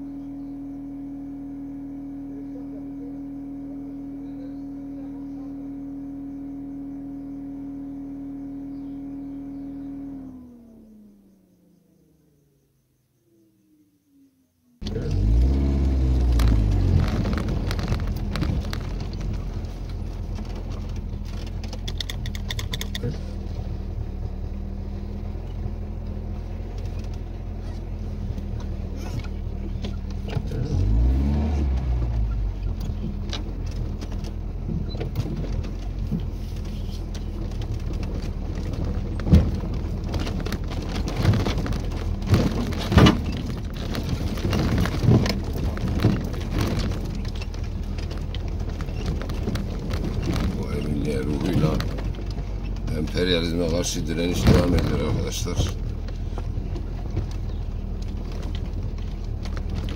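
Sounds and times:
car engine running: 0.0 - 59.9
knocks and rattles over bumps: 14.8 - 59.9.

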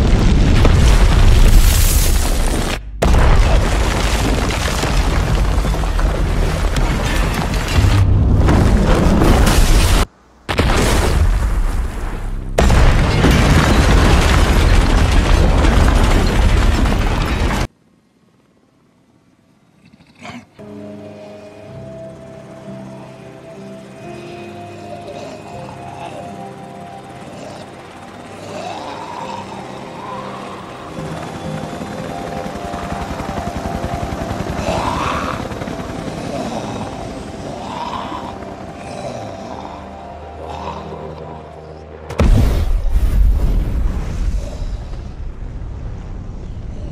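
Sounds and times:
helicopter rotor chopping: 25.6 - 39.5.

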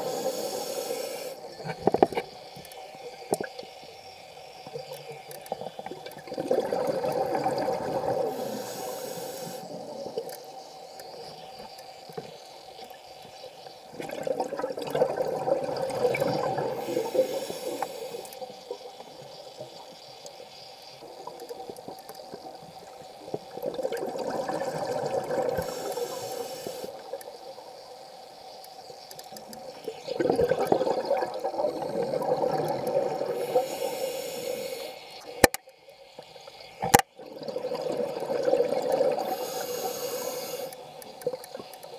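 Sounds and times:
scuba regulator breathing underwater: 0.0 - 1.8, 6.4 - 9.9, 14.8 - 18.6, 23.8 - 27.1, 30.2 - 35.3, 37.4 - 41.0.

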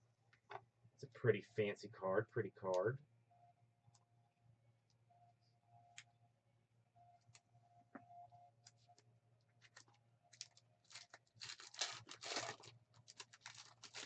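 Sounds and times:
plastic packaging crinkling: 8.7 - 14.0.

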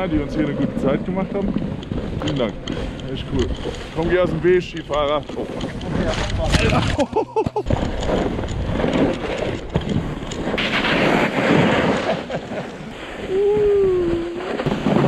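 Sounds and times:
snowboard and skis sliding on snow: 0.0 - 15.0
wind on microphone: 0.0 - 15.0
person calling out: 13.2 - 14.5.

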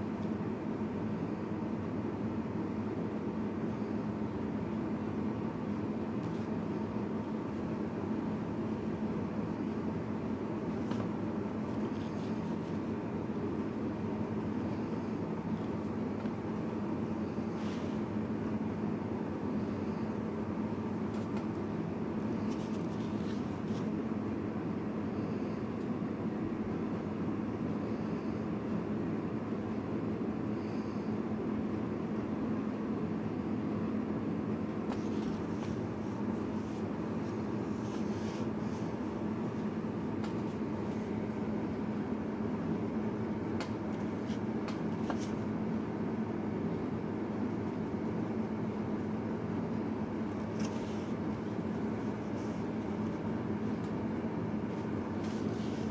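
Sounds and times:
low background hum: 0.0 - 55.9
marker drawing on paper: 34.9 - 39.7.

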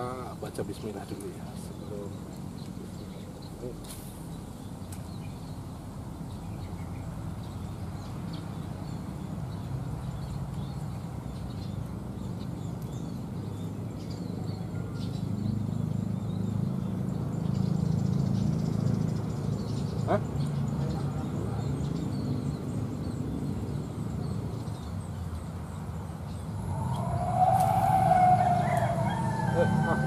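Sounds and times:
faint bird chirps: 26.2 - 30.0.

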